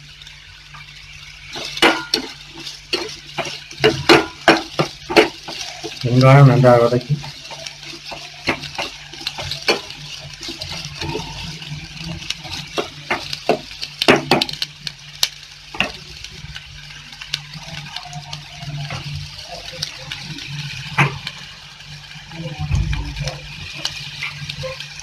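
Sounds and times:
onions sizzling in hot oil: 0.0 - 25.0
spatula scraping a metal pot: 1.5 - 13.8.

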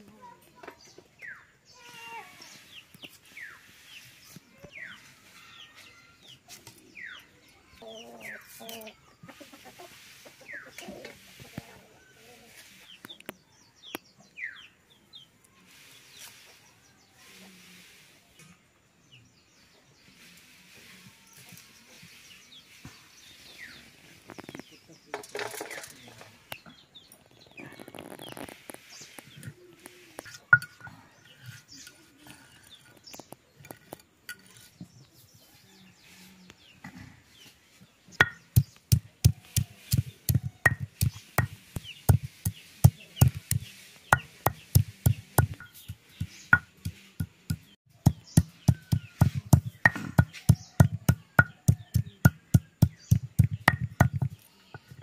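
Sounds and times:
stone pestle knocking on stone: 38.2 - 54.4.

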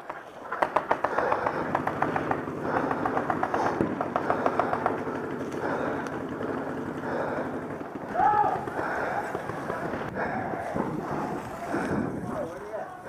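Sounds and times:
paintball markers popping: 0.0 - 6.2
outdoor background noise: 0.0 - 13.0.

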